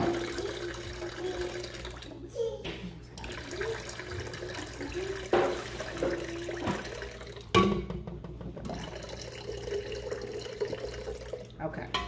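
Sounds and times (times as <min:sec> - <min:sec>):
juice pouring into glass jar: 0:08.7 - 0:11.6.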